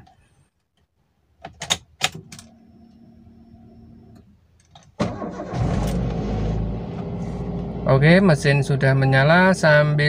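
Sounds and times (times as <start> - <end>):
faint steady hum: 2.2 - 4.7
car engine cranking and idling: 4.8 - 10.0.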